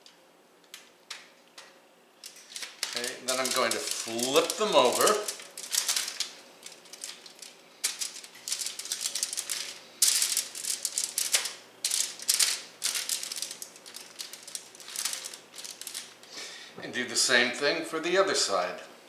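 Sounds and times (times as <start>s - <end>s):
aluminum foil crinkling: 0.7s - 16.3s.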